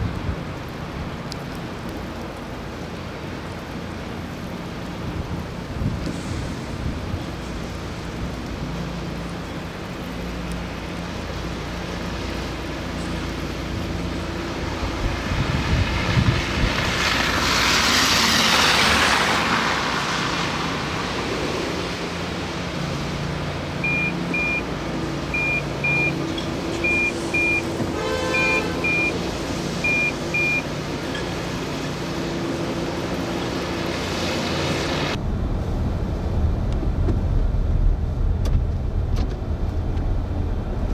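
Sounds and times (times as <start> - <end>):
car engine and road noise: 0.0 - 40.9
short high electronic beeps: 26.8 - 27.6.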